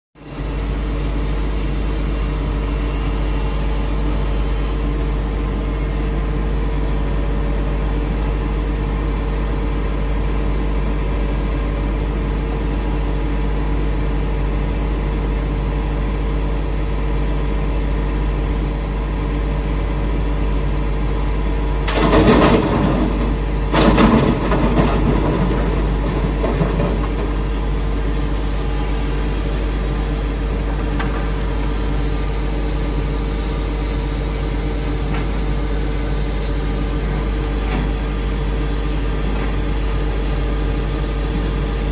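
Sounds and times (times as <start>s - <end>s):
dump truck idling: 0.2s - 41.9s
excavator diesel engine running: 0.2s - 41.9s
rock crashing into truck bed: 21.9s - 27.6s.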